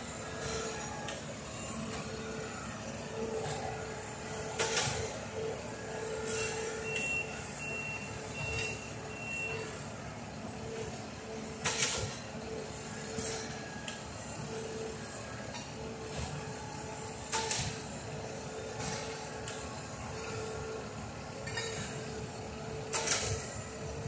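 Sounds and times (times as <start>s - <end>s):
track machine engine running: 0.0s - 24.0s
short high-pitched alarm beeps: 6.3s - 9.7s.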